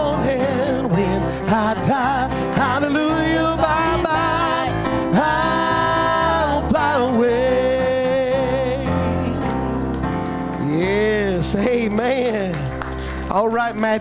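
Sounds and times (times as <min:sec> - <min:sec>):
man singing into a microphone: 0:00.0 - 0:09.5, 0:10.6 - 0:14.0
electric guitar: 0:00.0 - 0:11.6
keyboard: 0:00.0 - 0:14.0.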